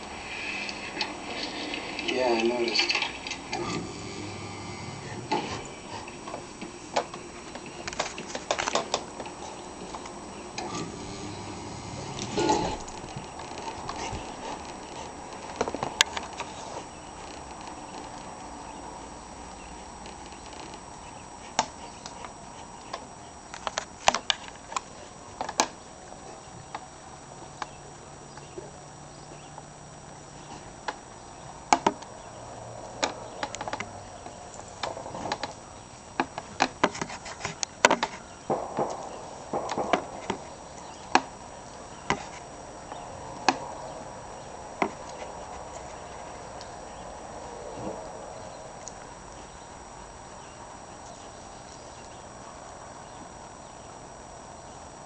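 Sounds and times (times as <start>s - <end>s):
steady low hum: 0.0s - 55.0s.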